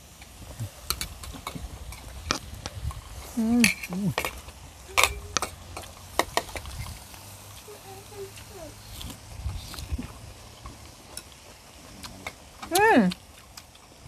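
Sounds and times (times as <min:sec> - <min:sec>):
chopsticks clicking against bowls: 0:03.6 - 0:06.9.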